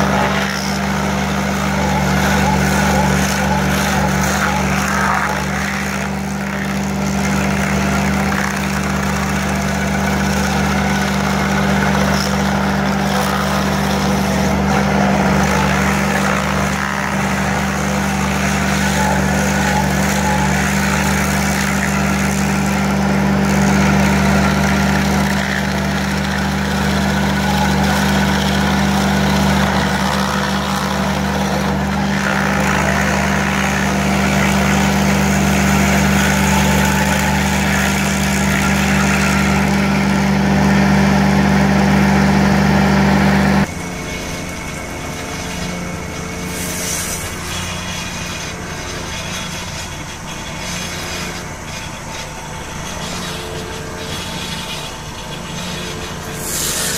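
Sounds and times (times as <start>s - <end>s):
loader engine running: 0.0s - 56.9s
stump grinder grinding: 0.0s - 56.9s.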